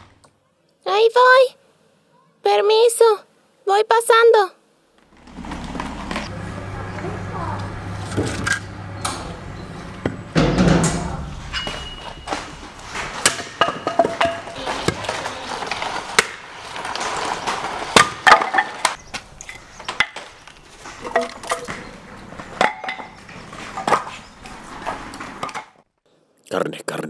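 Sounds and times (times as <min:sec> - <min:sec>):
wood cracking and splitting: 0:14.5 - 0:21.9.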